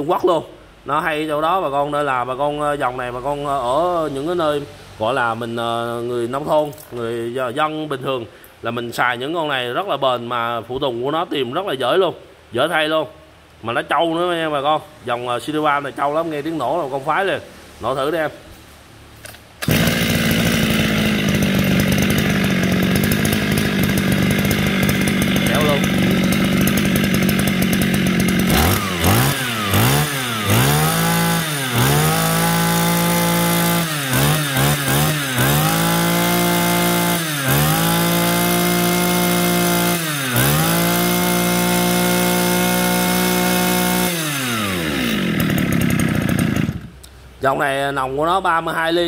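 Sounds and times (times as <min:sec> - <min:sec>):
brush cutter engine starting and running: 0:19.2 - 0:47.2.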